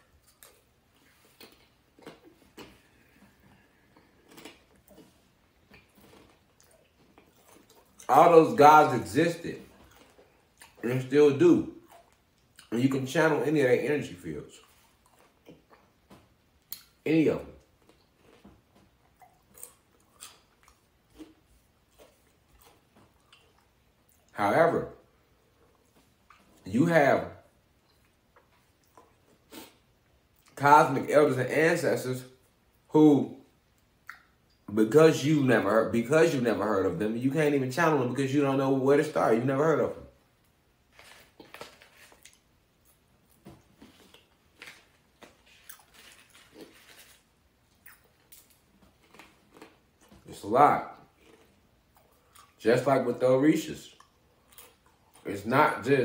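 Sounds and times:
person crunching chips: 0:00.1 - 0:11.1, 0:19.3 - 0:23.7, 0:40.9 - 0:50.4, 0:51.0 - 0:52.6.

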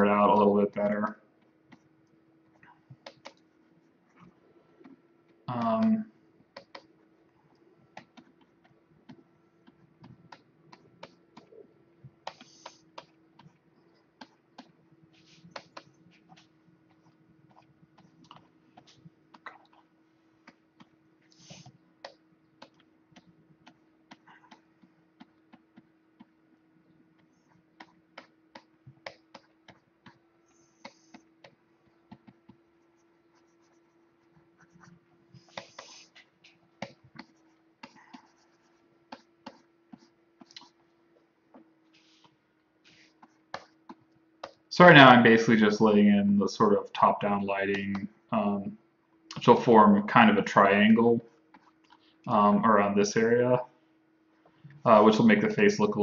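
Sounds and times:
faint steady hum: 0:00.0 - 0:56.0
computer keyboard and mouse clicking: 0:03.0 - 0:03.4.

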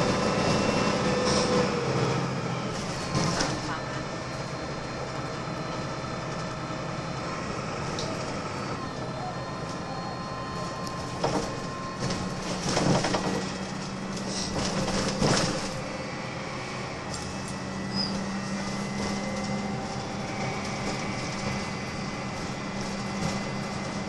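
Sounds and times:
bus engine hum with whine: 0:00.0 - 0:24.0
rattles and knocks: 0:11.2 - 0:13.9.

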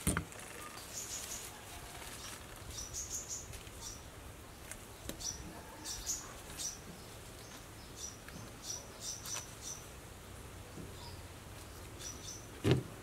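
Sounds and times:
small bird chirping: 0:00.4 - 0:04.1, 0:05.0 - 0:09.9, 0:10.9 - 0:12.5.

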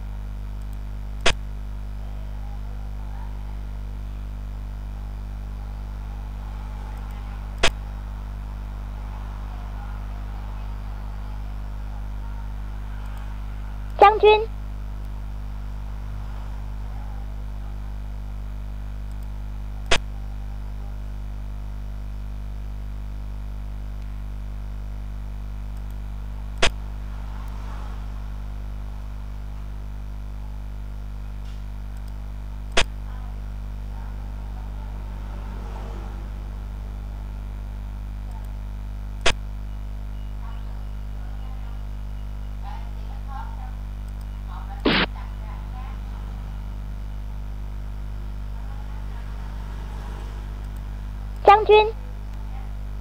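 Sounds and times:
steady low hum: 0:00.0 - 0:53.0
sharp computer clicks: 0:31.9 - 0:32.9.

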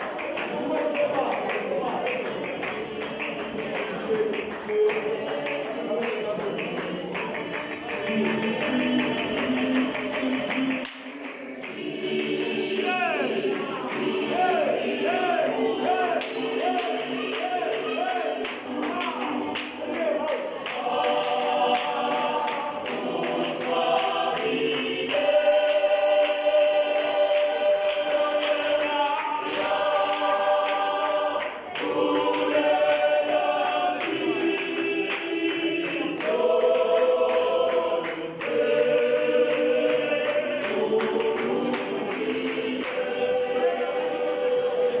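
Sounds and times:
choir singing in harmony: 0:00.0 - 0:45.0
hand-clapping: 0:00.0 - 0:45.0.

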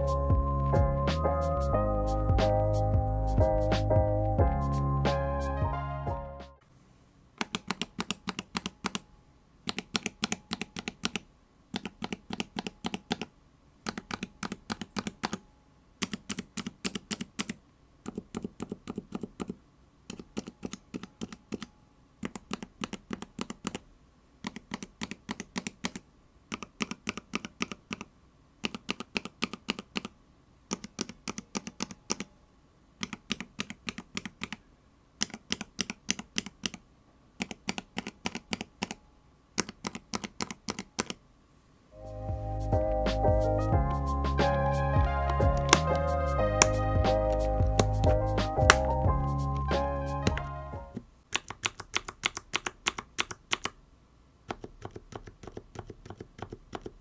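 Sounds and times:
keyboard switches clacking: 0:07.4 - 0:09.0, 0:09.6 - 0:15.4, 0:16.0 - 0:23.8, 0:24.4 - 0:32.3, 0:33.0 - 0:34.6, 0:35.2 - 0:36.8, 0:37.4 - 0:39.0, 0:39.6 - 0:41.2, 0:43.9 - 0:49.0, 0:49.6 - 0:50.5, 0:51.3 - 0:53.8.

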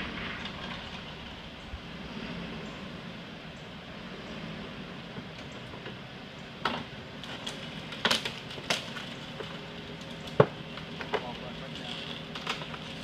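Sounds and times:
truck engine humming: 0:00.0 - 0:13.0
car cracking and knocking: 0:06.6 - 0:13.0.

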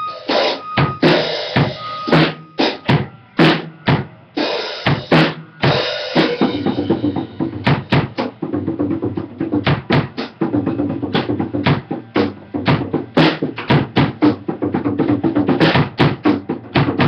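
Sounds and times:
bass drum strikes: 0:04.9 - 0:17.0.

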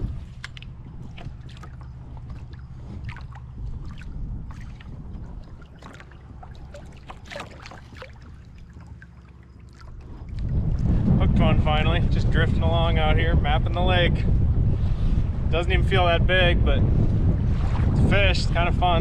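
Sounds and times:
small waves lapping against hull: 0:00.0 - 0:19.0
wind rumble on microphone: 0:00.0 - 0:19.0.

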